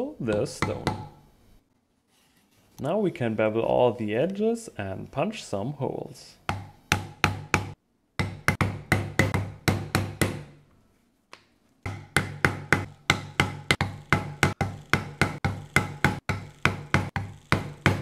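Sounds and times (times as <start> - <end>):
mallet tapping metal tool: 0.3 - 1.2, 11.9 - 18.0.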